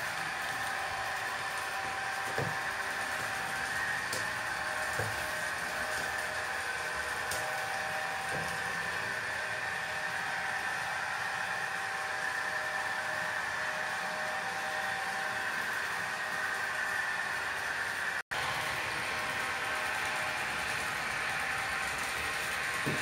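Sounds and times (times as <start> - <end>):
model train motor whirring: 18.4 - 23.0.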